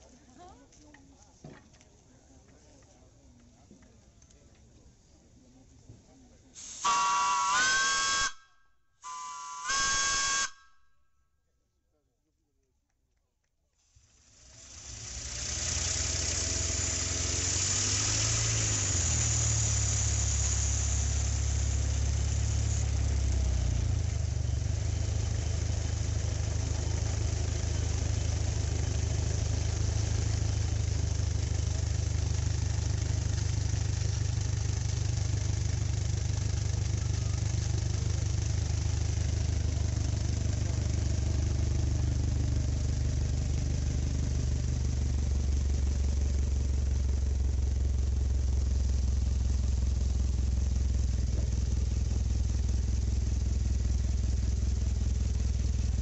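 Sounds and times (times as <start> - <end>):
loud steam hiss: 6.6 - 8.3, 14.3 - 23.2
steam pump humming: 14.1 - 46.5.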